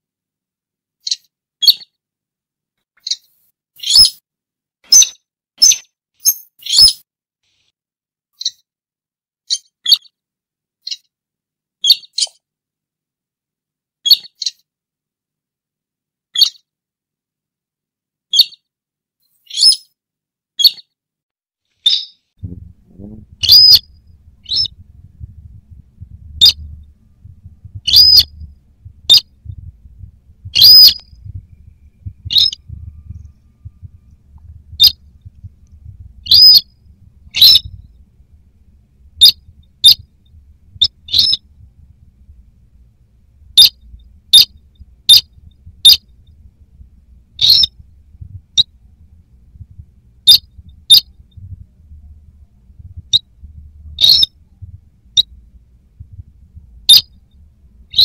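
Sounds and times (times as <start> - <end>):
short sharp high bird calls: 3.0 - 4.2, 23.4 - 24.8, 27.8 - 28.5, 30.5 - 34.0, 36.2 - 37.9, 40.8 - 41.4, 47.4 - 47.8, 54.0 - 54.3, 56.9 - 57.2
faint low rumble: 22.4 - 58.0.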